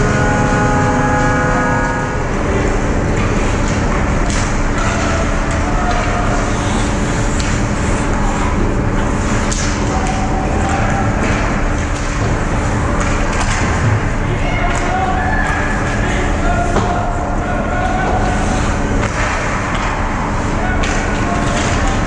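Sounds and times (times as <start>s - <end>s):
steady low rumble: 0.0s - 14.5s
sticks and puck knocking: 20.8s - 22.0s.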